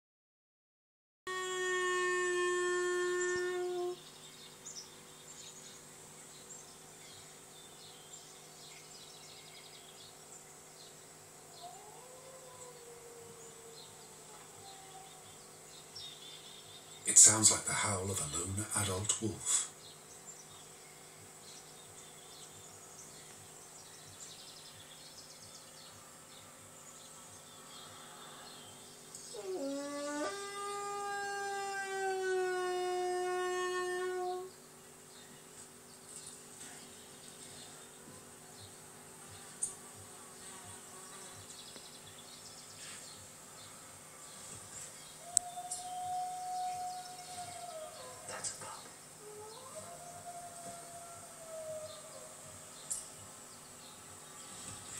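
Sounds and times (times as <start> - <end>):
long steady howl: 1.3 - 5.8, 7.8 - 18.8, 20.3 - 35.5, 36.1 - 42.4, 43.1 - 54.9
low electrical hum: 1.3 - 54.9
faint bird chirps: 1.4 - 39.8
insect sounds: 1.4 - 54.9.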